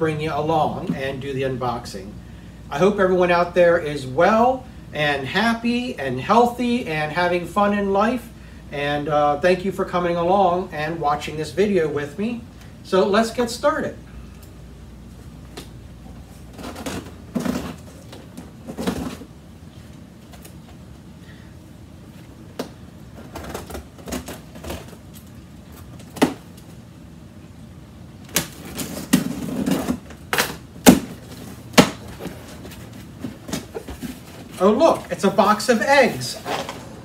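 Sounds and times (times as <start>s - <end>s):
packing tape pulled off cardboard: 22.6s - 26.8s, 28.2s - 34.7s.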